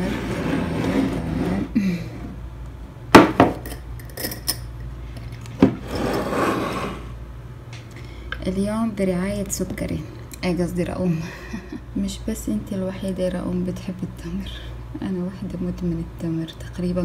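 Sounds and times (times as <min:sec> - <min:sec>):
glass lid scraping: 0:00.0 - 0:01.8, 0:05.7 - 0:07.2.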